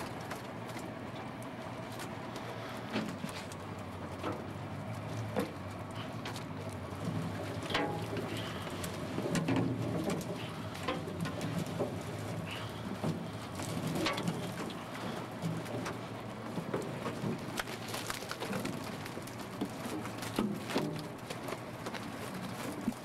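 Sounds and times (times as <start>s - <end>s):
low steady hum: 0.0s - 23.0s
net mesh rustling: 17.3s - 23.0s.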